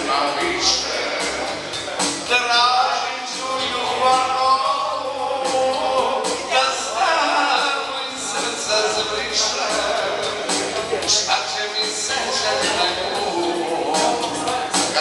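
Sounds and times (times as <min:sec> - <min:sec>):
live amplified music: 0:00.0 - 0:15.0
man singing into a microphone: 0:00.0 - 0:15.0.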